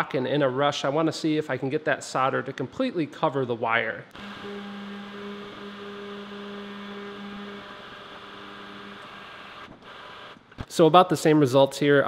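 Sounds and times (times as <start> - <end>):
heat gun fan humming: 4.1 - 10.6.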